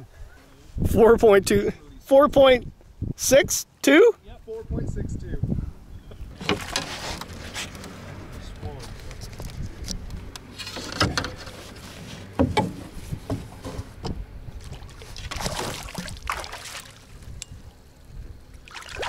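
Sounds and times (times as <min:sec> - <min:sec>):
water splashing: 0:06.3 - 0:07.6, 0:14.5 - 0:17.8, 0:18.5 - 0:19.0
hollow knocks on canoe hull: 0:12.3 - 0:14.2.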